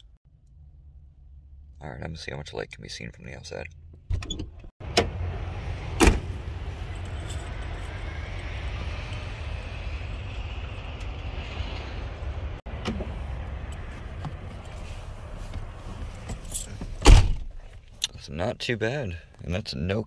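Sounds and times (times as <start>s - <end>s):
low rumble of traffic: 0.0s - 20.0s
truck door shutting: 5.9s - 6.5s, 15.6s - 17.6s.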